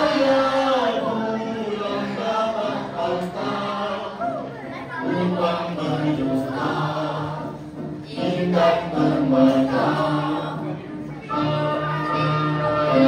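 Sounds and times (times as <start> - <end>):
group singing in unison: 0.0 - 13.0.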